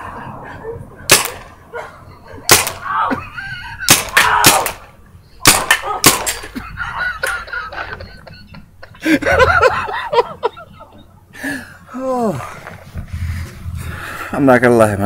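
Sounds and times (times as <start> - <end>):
paintball gun shots: 1.1 - 1.4, 2.5 - 2.8, 3.9 - 4.8, 5.4 - 6.4.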